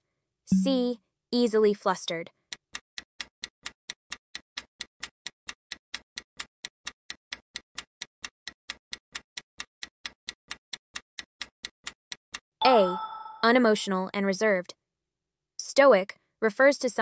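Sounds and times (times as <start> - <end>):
clock ticking: 0.5 - 0.8.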